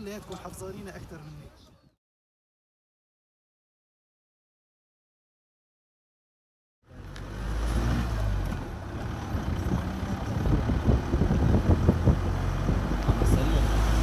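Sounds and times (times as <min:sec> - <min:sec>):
engine and road rumble: 0:06.8 - 0:14.0.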